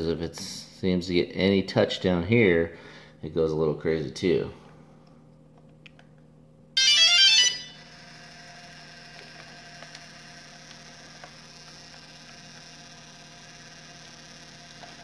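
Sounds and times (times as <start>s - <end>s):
electronic start-up tones: 6.8s - 8.3s
gimbal motors ticking: 8.2s - 15.0s.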